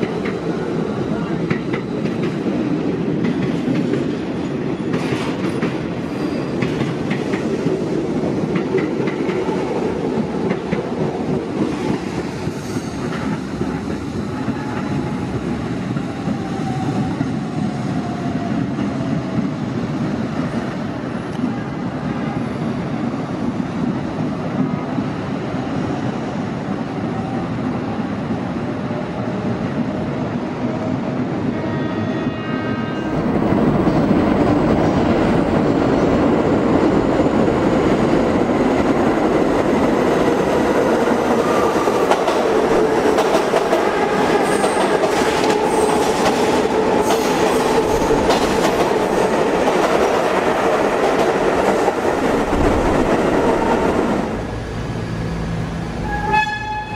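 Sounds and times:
clickety-clack of rail joints: 0.0s - 22.4s, 33.1s - 54.2s
train wheels rumbling on rail: 0.0s - 56.9s.

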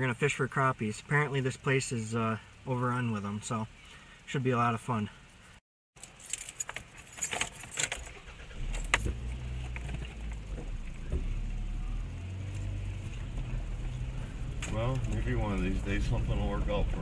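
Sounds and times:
car keys jingling: 6.0s - 11.1s
car engine starting and running: 6.6s - 17.0s.

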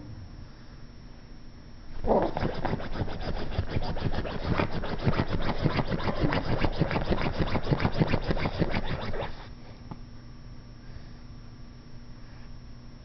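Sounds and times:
puppy scratching couch fabric: 2.1s - 9.5s.

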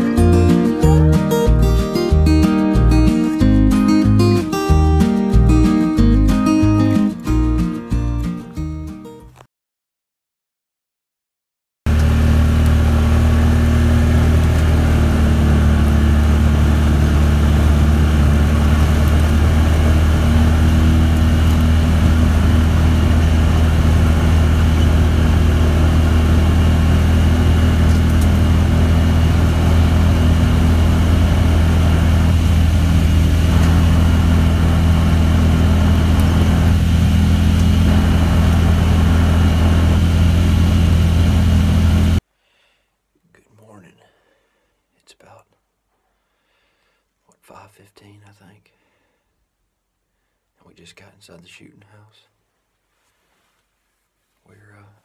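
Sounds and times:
vehicle engine and tyres droning: 11.9s - 42.2s.

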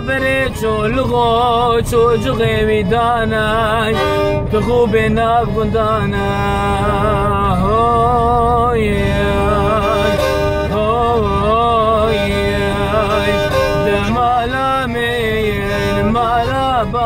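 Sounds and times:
bowed fiddle melody: 0.0s - 17.0s.

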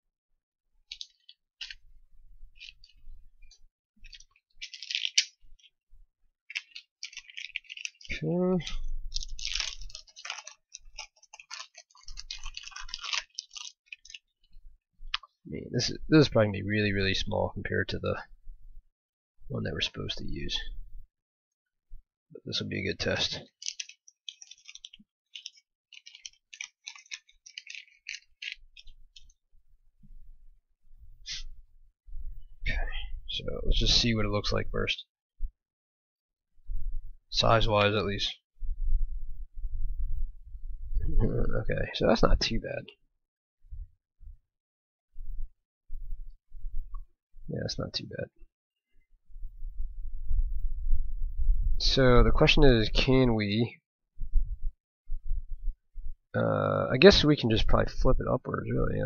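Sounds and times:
small parts and tools clicking: 0.9s - 1.8s, 2.6s - 5.8s, 6.5s - 14.3s, 23.4s - 29.4s
electronic parts rattling: 4.1s - 5.7s, 23.6s - 29.3s.

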